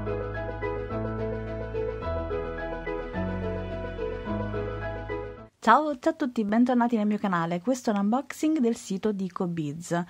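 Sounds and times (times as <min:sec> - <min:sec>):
instrumental background music: 0:00.0 - 0:05.6.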